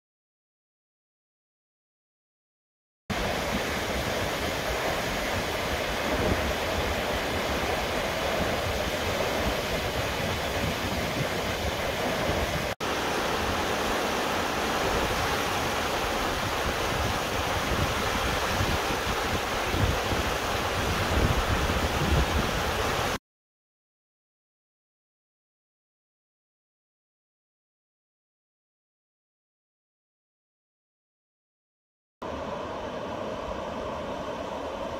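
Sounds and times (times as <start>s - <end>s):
water rushing over weir: 3.1s - 23.2s, 32.2s - 34.9s.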